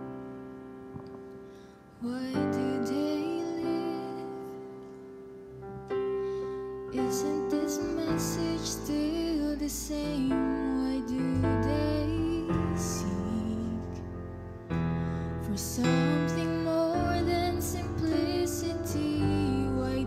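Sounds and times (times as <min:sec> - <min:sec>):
piano accompaniment: 0:00.0 - 0:20.0
woman singing into a microphone: 0:01.9 - 0:04.8, 0:06.9 - 0:14.2, 0:15.4 - 0:20.0.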